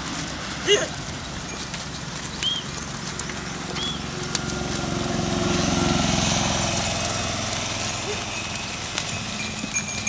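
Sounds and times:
truck engine passing: 0.0s - 10.0s
bird chirps: 2.3s - 2.8s, 3.4s - 4.1s.

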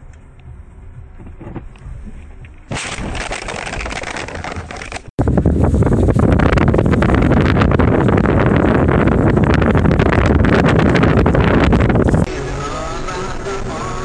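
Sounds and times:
low road rumble: 0.0s - 14.0s
loud rough crackling crash: 2.7s - 12.1s
wind buffeting microphone: 5.2s - 12.3s.

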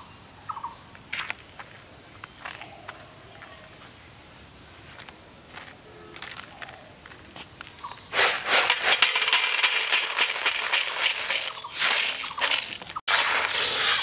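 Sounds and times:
dry seeds pouring into steel bowl: 8.2s - 14.0s.

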